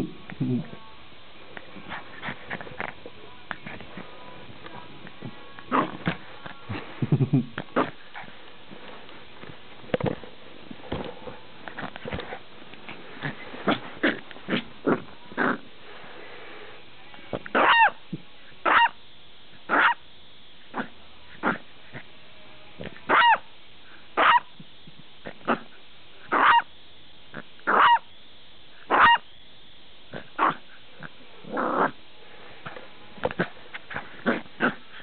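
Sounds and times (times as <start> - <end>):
puppy barking: 17.6 - 18.0, 18.6 - 19.0, 19.7 - 20.0, 23.1 - 23.4, 24.2 - 24.5, 26.3 - 26.7, 27.7 - 28.0, 28.9 - 29.2
puppy yipping: 17.6 - 18.0, 18.7 - 19.0, 19.7 - 20.0, 23.1 - 23.4, 24.2 - 24.5, 26.4 - 26.7, 27.7 - 28.0, 28.9 - 29.2.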